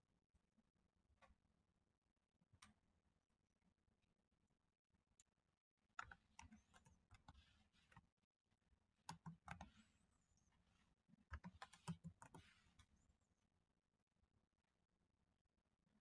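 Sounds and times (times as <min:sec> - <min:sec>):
typing on computer keyboard: 0:09.1 - 0:09.8, 0:11.3 - 0:12.6.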